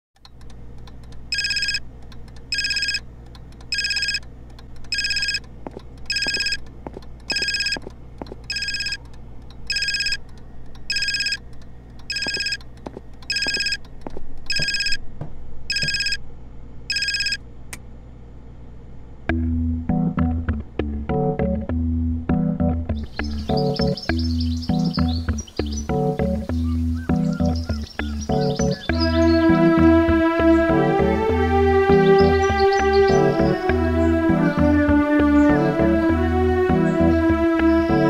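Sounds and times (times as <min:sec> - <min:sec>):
telephone bell ringtone: 0:01.3 - 0:01.8, 0:02.5 - 0:03.0, 0:03.7 - 0:04.2, 0:05.0 - 0:05.4, 0:06.1 - 0:06.6, 0:07.3 - 0:07.8, 0:08.5 - 0:09.0, 0:09.7 - 0:10.2, 0:10.9 - 0:11.4, 0:12.1 - 0:12.6, 0:13.3 - 0:13.8, 0:14.5 - 0:15.0, 0:15.7 - 0:16.2, 0:16.9 - 0:17.4.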